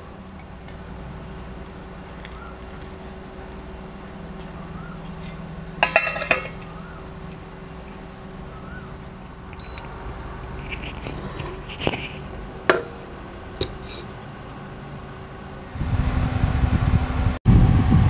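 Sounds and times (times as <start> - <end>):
low rumbling hum: 0.0 - 18.0
cookware clicks and knocks: 5.8 - 6.6
short high beep: 9.6 - 9.9.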